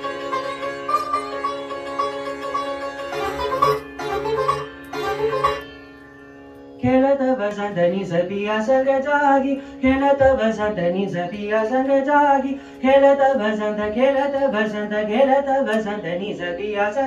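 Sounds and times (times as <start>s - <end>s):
plucked string instrument: 0.0s - 16.5s
man singing: 6.8s - 17.0s.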